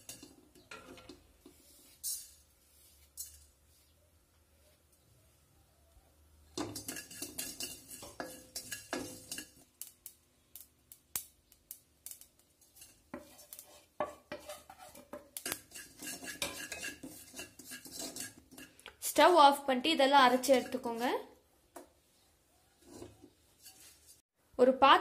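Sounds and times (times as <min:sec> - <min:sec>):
spatula scraping seeds in pot: 0:00.0 - 0:04.0, 0:06.5 - 0:09.9, 0:12.0 - 0:19.2, 0:20.3 - 0:21.0, 0:22.7 - 0:24.2.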